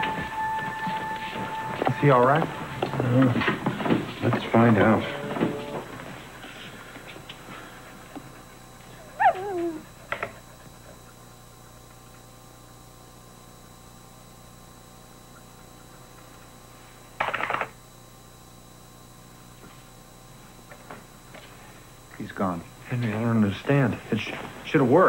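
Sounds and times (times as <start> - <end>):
faint steady hum: 0.0 - 25.0
dog whining: 8.9 - 10.8.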